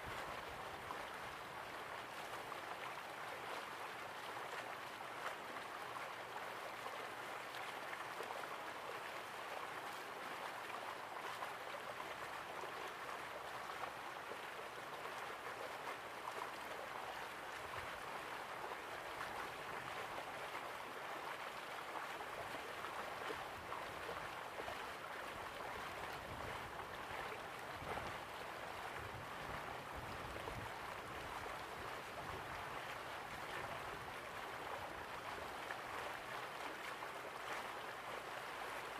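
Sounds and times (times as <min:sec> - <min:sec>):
sea water rushing and splashing: 0:00.0 - 0:38.9.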